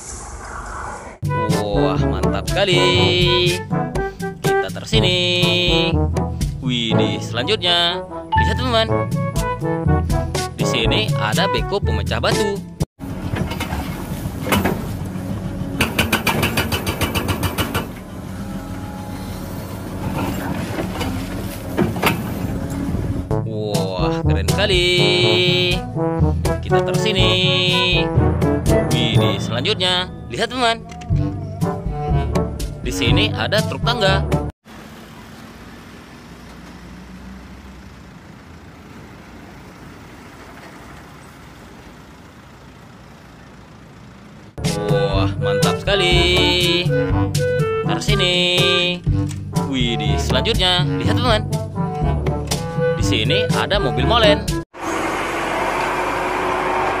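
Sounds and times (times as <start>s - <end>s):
diesel engine running: 12.0s - 23.4s, 24.3s - 33.4s, 34.6s - 53.2s, 53.9s - 57.0s
hydraulic breaker pounding rock: 15.8s - 18.0s.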